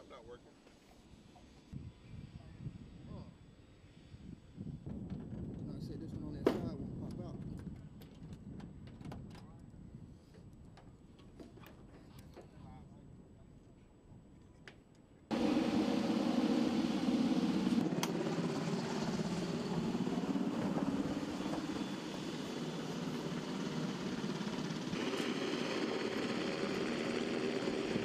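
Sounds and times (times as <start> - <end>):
distant machine running: 15.3 - 28.0.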